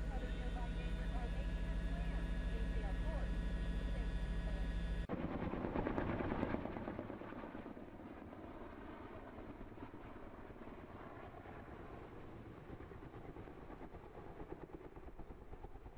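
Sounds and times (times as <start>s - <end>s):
steady droning hum: 0.0s - 5.1s
helicopter rotor beating: 0.0s - 15.9s.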